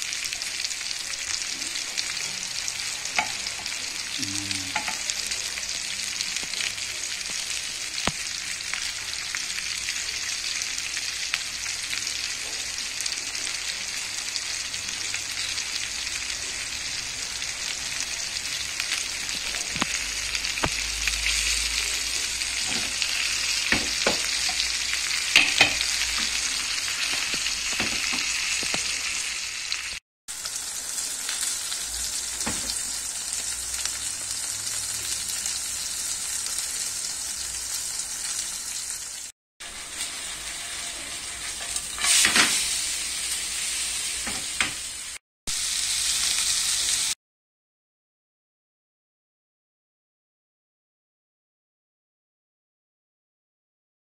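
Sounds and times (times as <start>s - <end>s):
fish sizzling in hot oil: 0.0s - 47.2s
oil popping and crackling: 18.9s - 21.7s, 22.6s - 30.5s.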